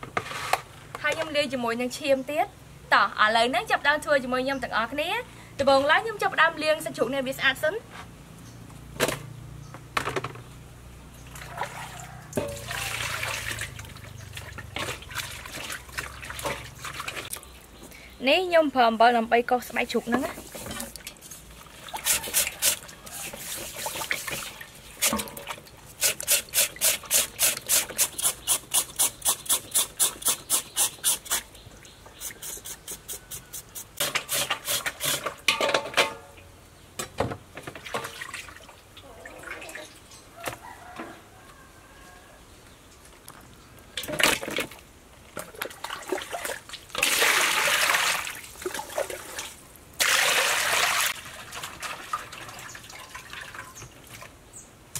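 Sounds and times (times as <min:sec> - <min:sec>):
water splashing in metal basin: 0:11.3 - 0:17.5, 0:20.1 - 0:28.0, 0:37.8 - 0:40.1, 0:44.0 - 0:54.4
knife scraping pork skin: 0:26.0 - 0:31.5, 0:32.2 - 0:35.3.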